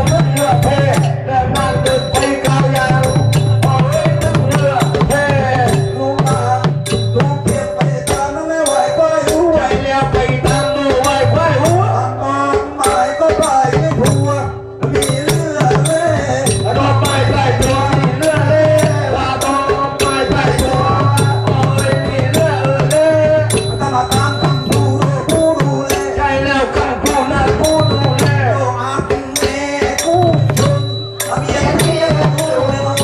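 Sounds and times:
rolling drum: 0.0 - 33.0
wavering melody line: 0.0 - 33.0
sharp clicking beat: 12.7 - 33.0.

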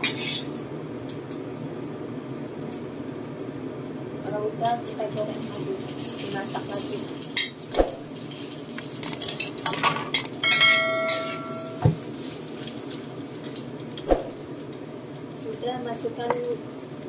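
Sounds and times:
oil sizzling: 0.0 - 17.0
metallic ring: 10.4 - 11.9
dull knock: 11.8 - 12.0.

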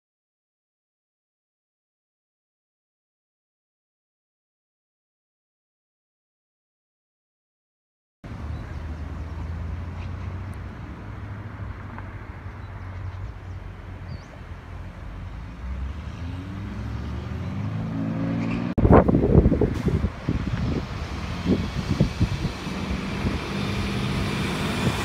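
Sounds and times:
vehicle engine humming: 8.3 - 25.0
gusty wind on microphone: 18.8 - 25.0.

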